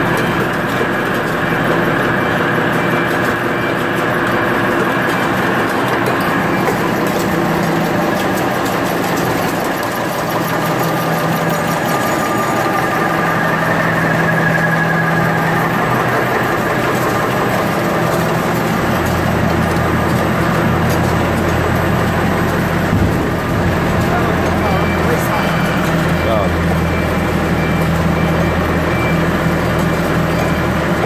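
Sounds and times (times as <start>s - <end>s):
low machine hum: 0.0s - 31.0s
machines rattling with rapid ticks: 0.0s - 31.0s
deeper hum: 10.2s - 27.7s.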